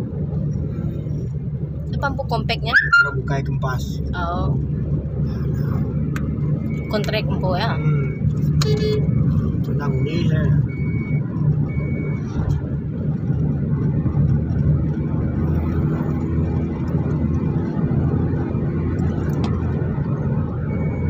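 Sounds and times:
engine and tyre drone inside car: 0.0s - 21.0s
short high beep: 7.7s - 9.2s.

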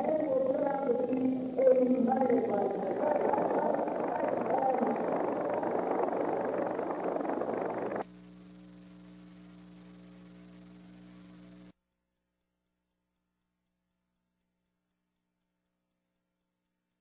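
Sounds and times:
electrical hum: 0.0s - 11.7s.

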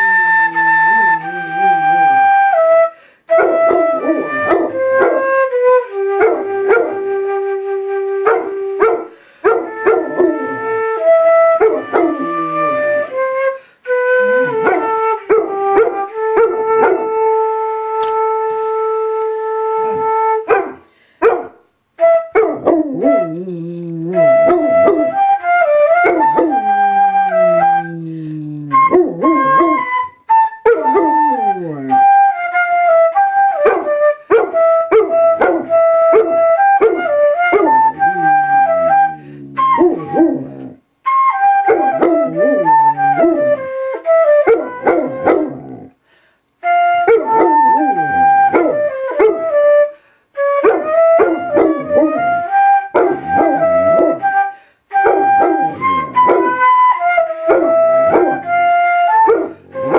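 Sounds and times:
flute playing held notes: 0.0s - 20.5s, 22.0s - 45.9s, 46.6s - 59.9s
dog howling: 3.4s - 5.5s, 9.6s - 13.4s, 14.1s - 17.1s, 22.3s - 30.1s, 30.7s - 32.2s, 33.6s - 40.8s, 41.5s - 45.9s, 47.0s - 49.6s, 50.6s - 54.4s, 55.0s - 59.9s.

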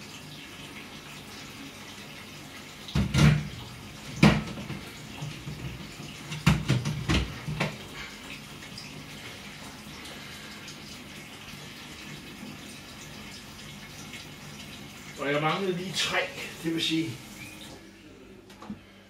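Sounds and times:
blender jug knocking on pot: 2.9s - 3.5s, 4.2s - 4.8s, 6.4s - 7.8s.

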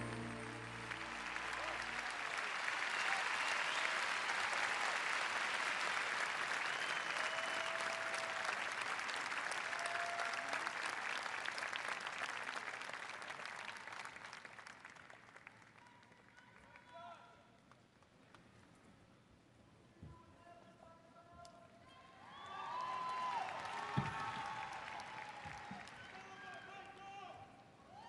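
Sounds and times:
guitar notes: 0.0s - 1.9s
audience applauding: 0.0s - 17.0s, 22.2s - 27.0s.

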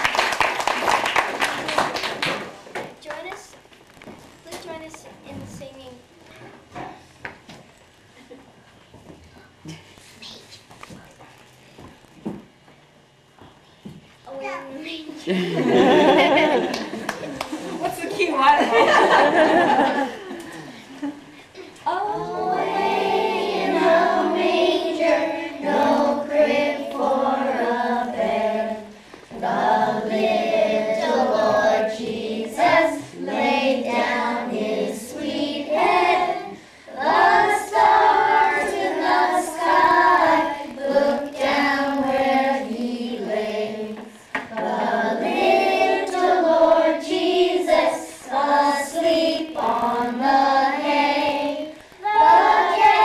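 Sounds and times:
girls singing together: 18.6s - 53.0s.

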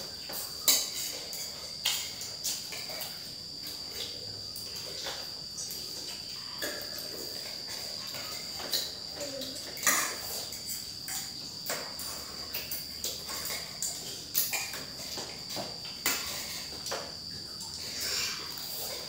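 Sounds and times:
crickets chirring: 0.0s - 19.0s
cutlery clinking on ceramic plates: 0.2s - 3.2s, 6.6s - 17.1s.

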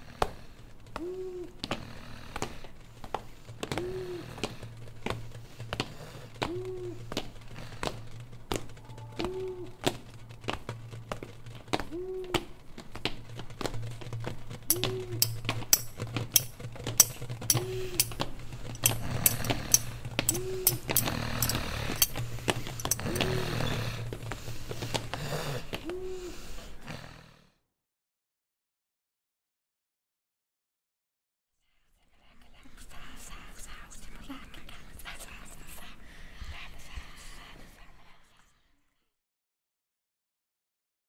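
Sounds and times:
steady low drone: 0.0s - 26.8s
rumbling noise: 0.4s - 25.8s
knocks and clicks: 2.4s - 25.9s.

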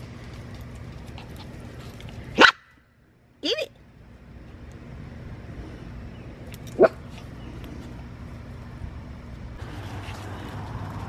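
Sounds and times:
low background rumble: 0.0s - 11.0s
puppy yip: 2.4s - 2.7s.

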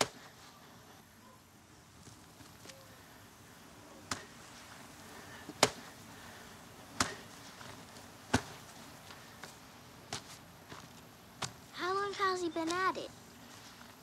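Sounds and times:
shovel striking dirt: 5.5s - 5.9s, 7.0s - 7.4s, 8.3s - 8.6s.

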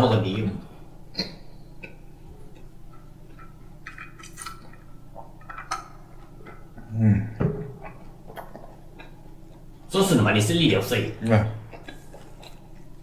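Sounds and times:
man's low vocal sound: 6.8s - 7.4s.

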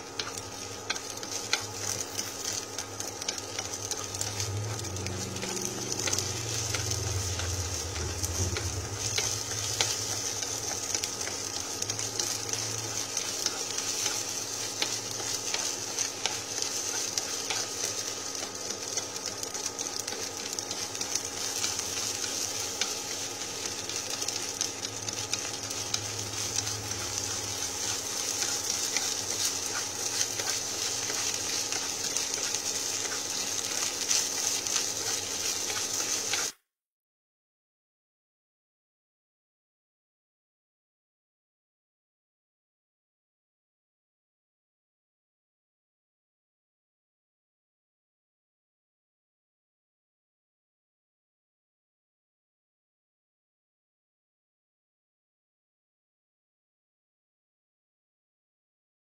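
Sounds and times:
rice sizzling in a frying pan: 0.0s - 36.6s
chopsticks scraping a pan: 0.2s - 19.4s, 20.1s - 36.6s.

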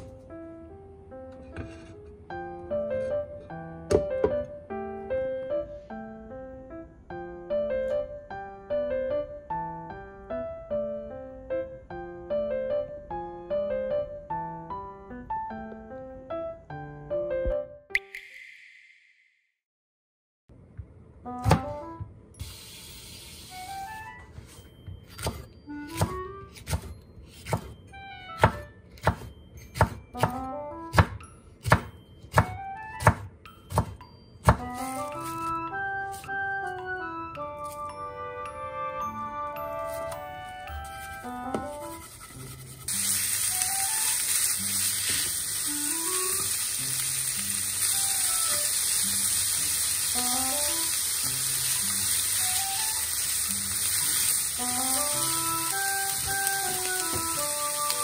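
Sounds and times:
light background music: 0.0s - 17.8s, 21.2s - 22.7s, 23.4s - 58.0s
knife knocking on cutting board: 3.9s - 4.4s
meat sizzling in a frying pan: 42.8s - 58.0s.

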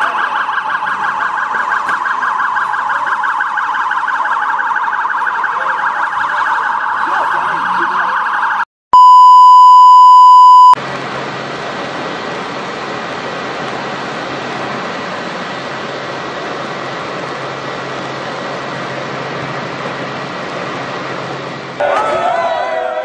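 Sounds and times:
siren warbling: 0.0s - 10.8s
loud pure beep tone: 9.0s - 10.8s.

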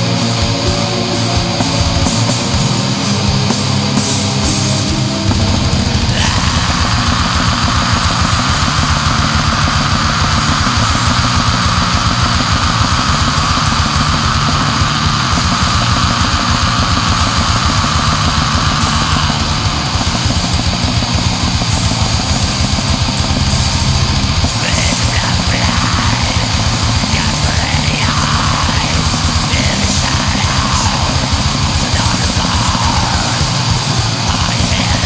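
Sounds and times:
distorted guitars and bass: 0.0s - 35.0s
fast dense drumming: 0.0s - 35.0s
harsh vocals: 0.0s - 35.0s.

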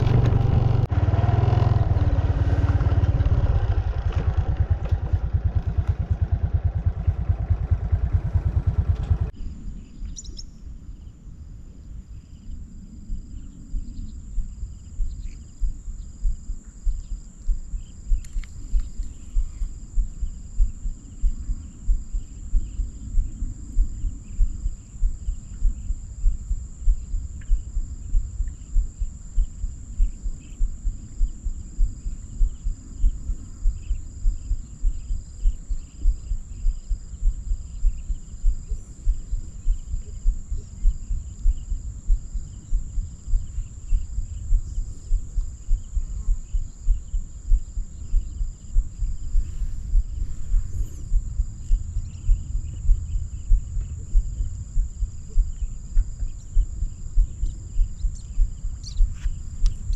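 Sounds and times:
insects chirring: 0.0s - 59.9s
low regular thudding: 14.4s - 59.9s.

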